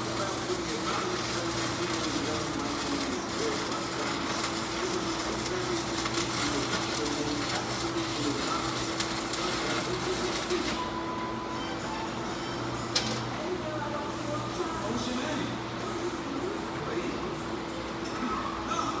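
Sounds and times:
arc welding crackle: 0.0s - 11.0s.

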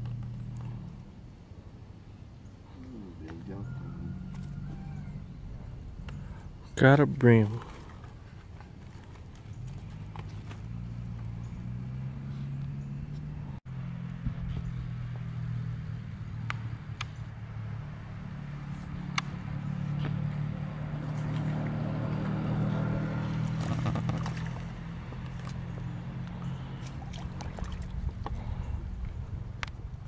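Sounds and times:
steady low hum: 0.0s - 23.6s
fish splashing at water surface: 26.7s - 28.4s.

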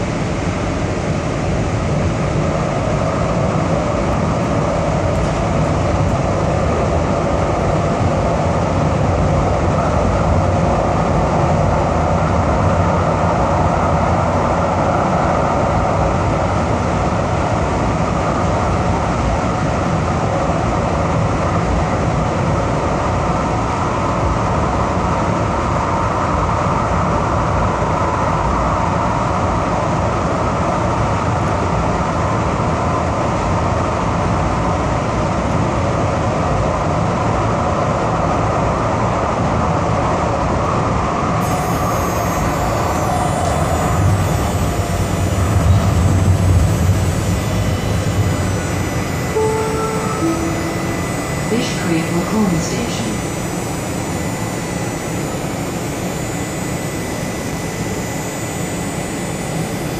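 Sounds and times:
rail car wheels on rails: 2.0s - 8.6s.

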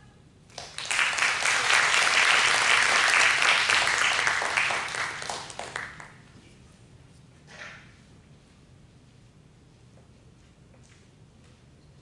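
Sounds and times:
audience applauding: 0.5s - 6.2s.

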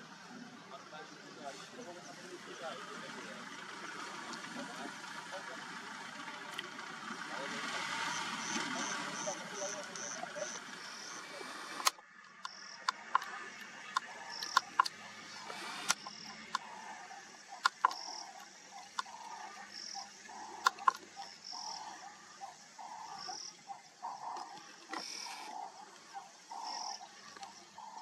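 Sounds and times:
frogs croaking: 0.0s - 28.0s
insects chirping: 0.0s - 28.0s
sharp loud clicks: 11.2s - 16.8s, 17.6s - 21.9s.

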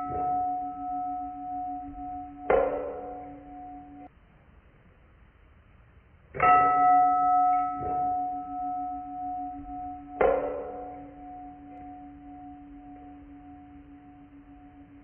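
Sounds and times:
struck metal ringing: 0.0s - 4.1s, 6.4s - 15.0s.

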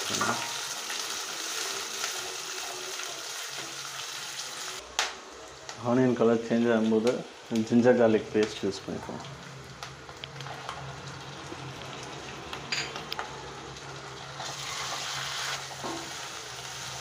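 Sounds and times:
onions sizzling in oil: 0.0s - 17.0s.

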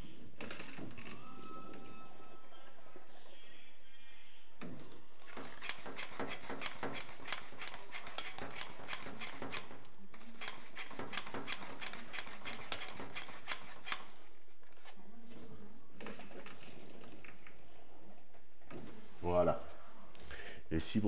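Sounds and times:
hand air pump strokes: 5.3s - 14.1s.

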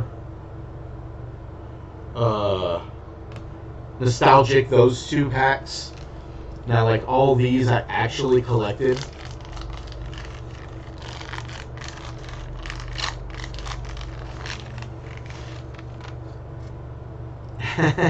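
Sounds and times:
steady low hum: 0.0s - 18.0s
wax-paper wrapper crinkling and tearing: 5.8s - 6.2s, 8.1s - 16.7s.

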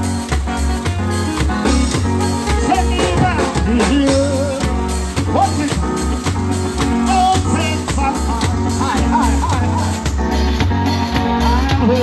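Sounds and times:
pulsing bass beat: 0.0s - 12.0s
person singing: 2.5s - 6.2s, 6.8s - 10.2s, 11.1s - 12.0s.

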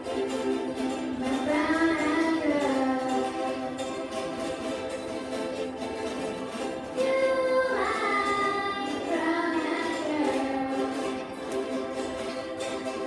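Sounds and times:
children singing along: 0.0s - 13.0s
ukuleles playing: 0.0s - 13.0s
child singing into microphone: 1.2s - 3.7s, 7.0s - 11.3s.

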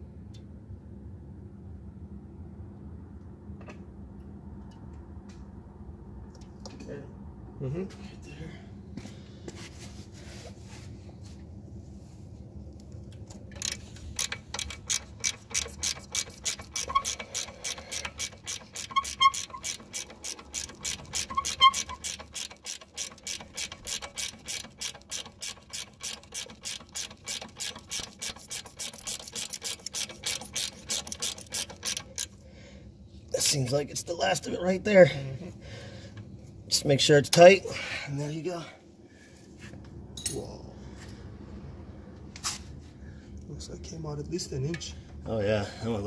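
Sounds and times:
hand ratchet clicking: 13.2s - 32.4s.

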